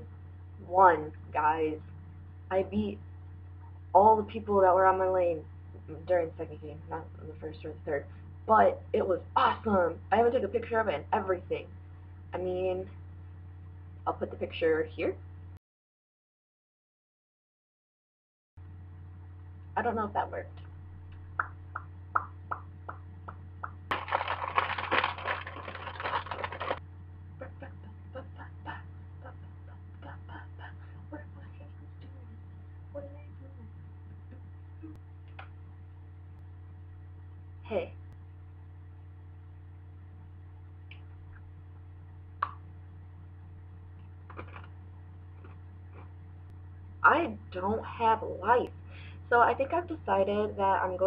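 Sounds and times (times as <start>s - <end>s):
low electrical hum: 0.0s - 15.6s, 18.6s - 51.0s
pretzel crunch bite: 23.9s - 26.8s
faint chewing: 44.2s - 46.2s.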